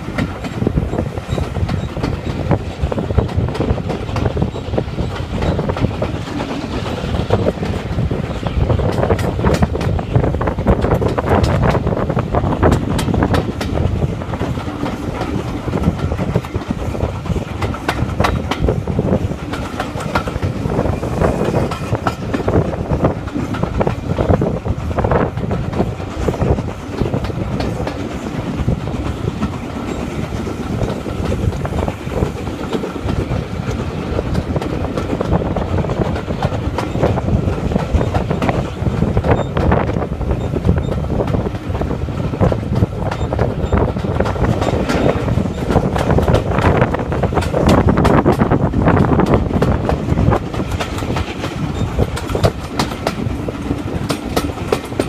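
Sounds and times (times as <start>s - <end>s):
train wheels rumbling on track: 0.0s - 55.0s
clicks over rail joints: 40.6s - 55.0s.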